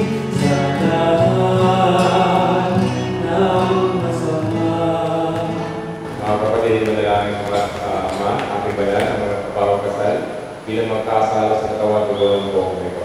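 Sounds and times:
voices singing slow church melody: 0.0 - 13.0.

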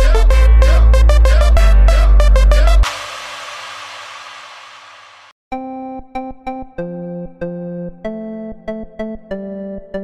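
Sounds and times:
electronic music hiss-like wash: 2.5 - 5.4.

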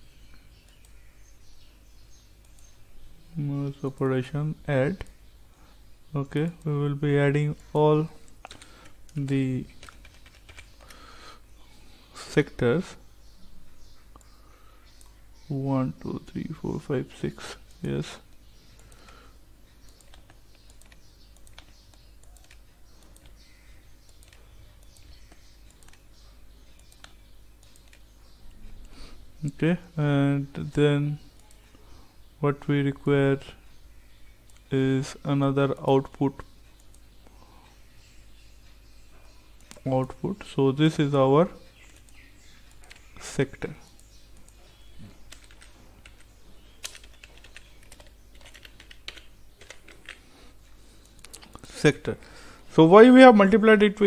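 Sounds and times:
low steady hum: 0.0 - 54.0
computer mouse clicks: 19.8 - 23.4, 24.0 - 26.1, 26.7 - 28.0.

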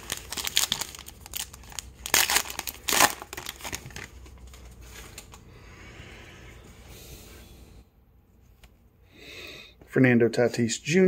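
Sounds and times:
foil wrapper tearing and crinkling: 0.0 - 4.6.

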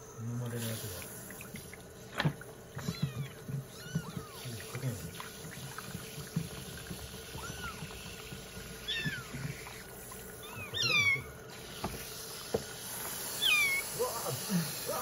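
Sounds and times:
running shower water hiss: 0.4 - 2.1, 3.9 - 15.0
kittens mewing: 2.7 - 5.0, 7.2 - 8.2, 8.8 - 11.4, 13.4 - 15.0.

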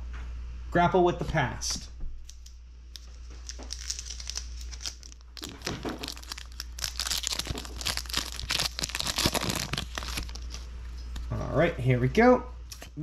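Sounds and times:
foil wrapper crinkling and tearing: 2.3 - 10.7.

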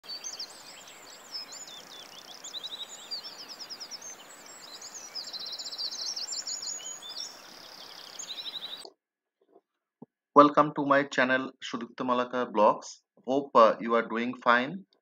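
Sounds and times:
songbirds chirping and singing: 0.0 - 8.9.

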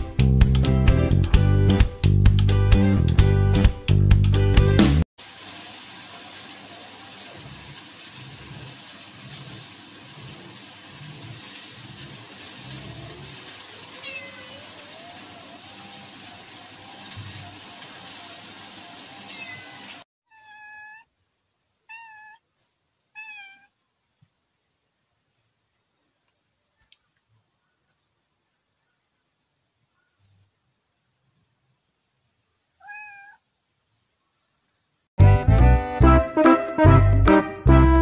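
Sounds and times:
steady hiss: 5.2 - 20.0
cat meowing: 13.9 - 15.4, 19.3 - 21.1, 21.8 - 22.5, 23.1 - 23.8, 32.8 - 33.4.

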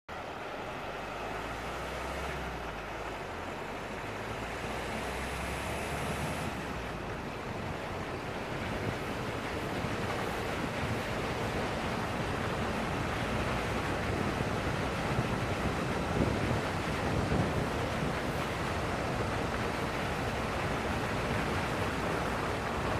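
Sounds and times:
wind rushing over microphone: 4.0 - 22.9.

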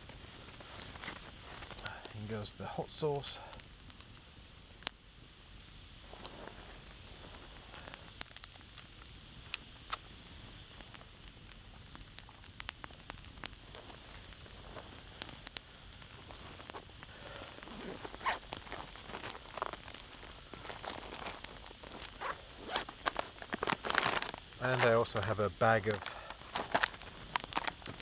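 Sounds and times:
campfire crackling and popping: 0.0 - 28.0
low steady hiss: 0.0 - 28.0
handling noise: 16.3 - 25.1, 25.9 - 28.0.

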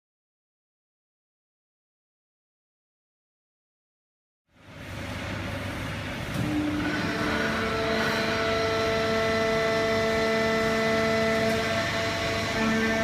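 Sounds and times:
baler machine drone: 4.5 - 13.0
steady whining tones: 4.7 - 13.0.

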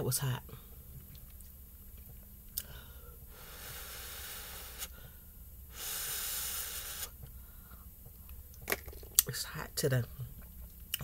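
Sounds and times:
person drawing breath through mouth: 3.3 - 7.8.

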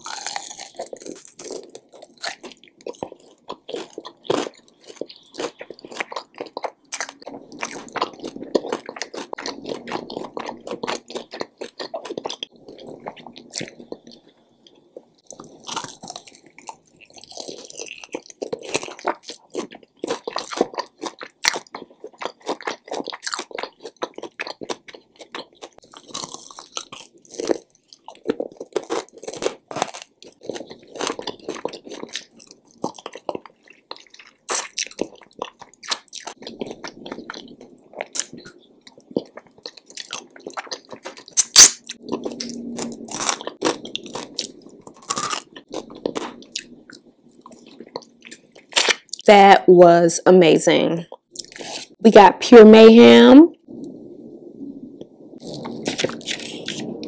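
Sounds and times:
crunching and chewing: 0.0 - 49.3, 51.1 - 52.0, 55.4 - 57.0
sharp crack: 41.3 - 42.0.

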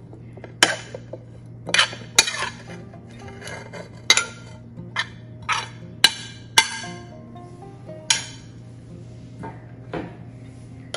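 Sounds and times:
utensil scraping plate and mortar: 0.6 - 6.2.

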